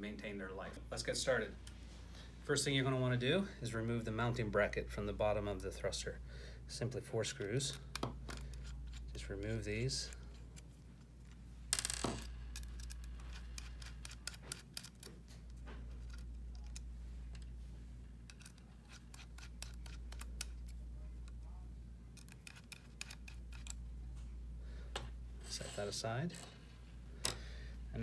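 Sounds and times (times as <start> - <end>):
steady low hum: 0.0 - 28.0
screwdriver clicking on screws: 18.3 - 20.8.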